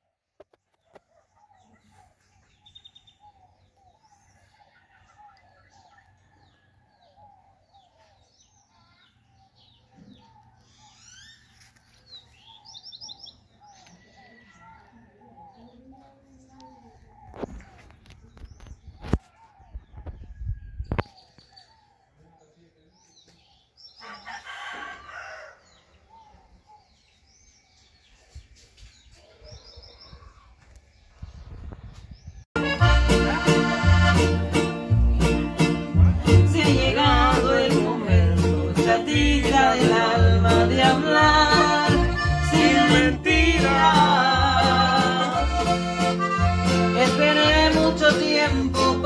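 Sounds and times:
birds chirping and trilling: 0:00.5 - 0:32.8
rooster crowing: 0:24.0 - 0:25.9.

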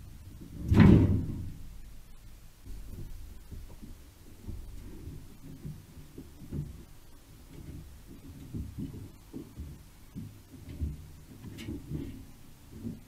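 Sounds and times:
dull low thumps: 0:02.7 - 0:13.0.

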